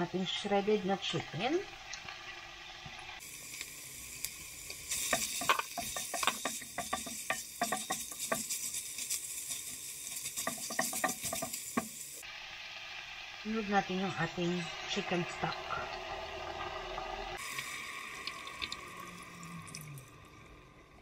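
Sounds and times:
food sizzling in oil: 0:00.3 - 0:20.0
spatula scraping a pot: 0:04.9 - 0:11.9.

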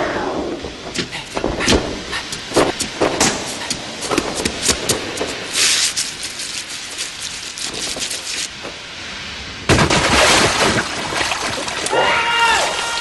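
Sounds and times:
shoes tapping on wet pavement: 0:00.9 - 0:08.5
spray hissing: 0:01.0 - 0:08.5
splash in puddle: 0:05.5 - 0:08.5, 0:09.7 - 0:12.0.

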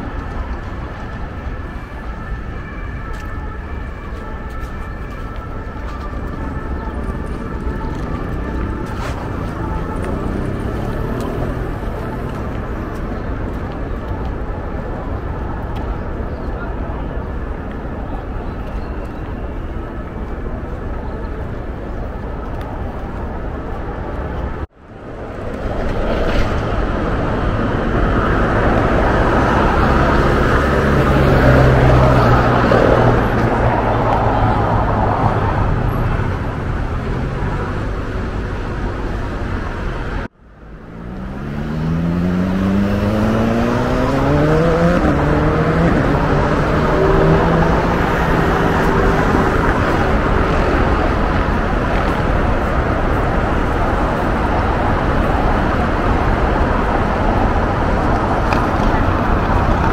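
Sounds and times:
road traffic noise: 0:00.0 - 0:59.9
vehicle engine accelerating: 0:06.0 - 0:13.8, 0:25.6 - 0:59.9.

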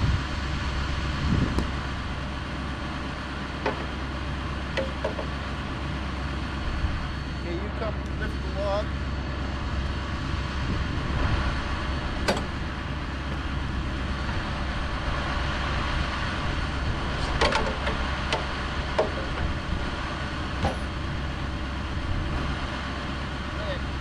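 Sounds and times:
engine running: 0:00.0 - 0:24.0
sharp knocks: 0:03.6 - 0:04.0, 0:04.7 - 0:05.4, 0:17.4 - 0:19.5, 0:20.6 - 0:21.0.

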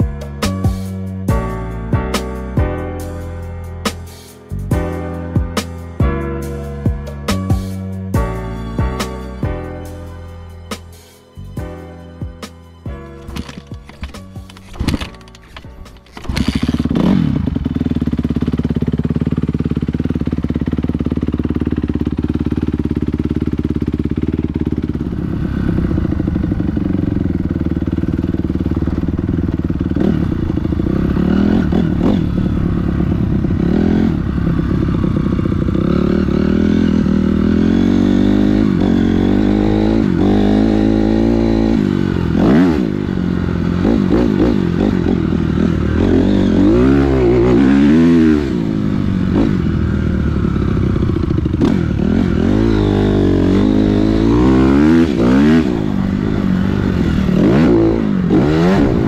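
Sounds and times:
dirt bike engine revving: 0:13.2 - 0:59.0.

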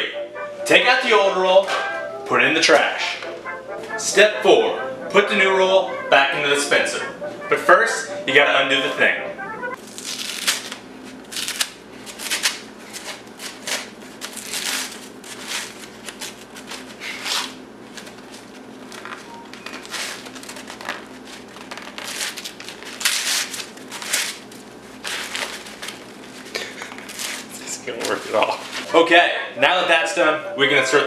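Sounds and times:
paper towel ripping and crinkling: 0:09.8 - 0:28.9.

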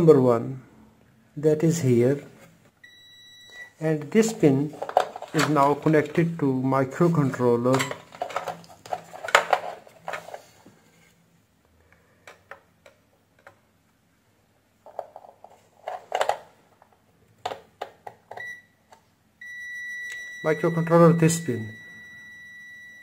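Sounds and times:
multimeter continuity beep: 0:02.8 - 0:03.8, 0:19.4 - 0:23.0.

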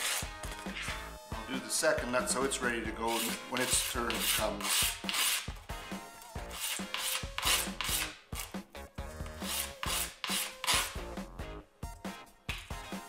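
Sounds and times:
metal scrubbed on sandpaper: 0:00.0 - 0:00.9, 0:03.1 - 0:05.6, 0:06.4 - 0:08.6, 0:09.4 - 0:11.0.

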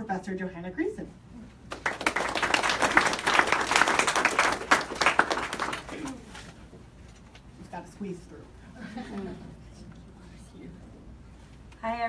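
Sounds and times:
audience applauding: 0:01.7 - 0:06.2.

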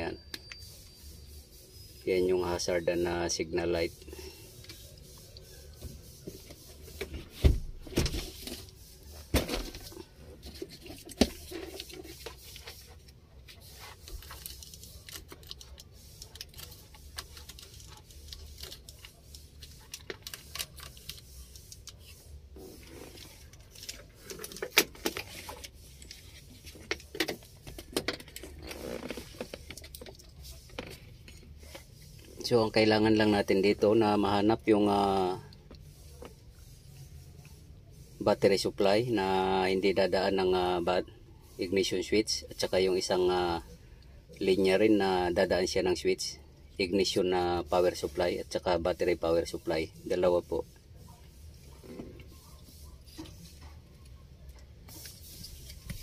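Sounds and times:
wires and plastic rattling: 0:02.0 - 0:36.6.

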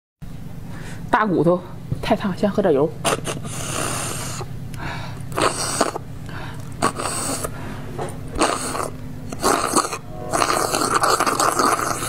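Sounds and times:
slurping through drinking straws: 0:03.1 - 0:04.5, 0:05.3 - 0:06.0, 0:06.8 - 0:07.6, 0:08.4 - 0:12.0.

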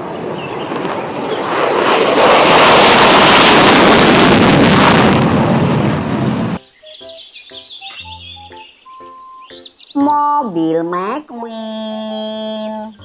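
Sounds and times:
jet engine roaring on takeoff: 0:00.0 - 0:06.6.

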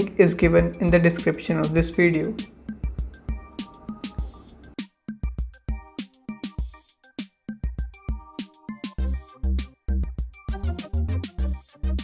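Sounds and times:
music with heavy bass-drum beat: 0:02.7 - 0:12.0.

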